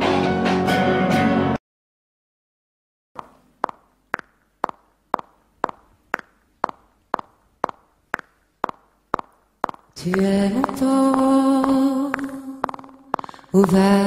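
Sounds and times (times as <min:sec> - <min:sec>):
music: 0:00.0 - 0:01.6.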